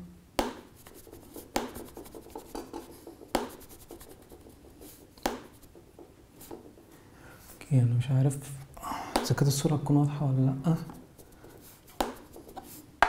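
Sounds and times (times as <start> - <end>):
coin scratching phone back: 0.8 - 5.7.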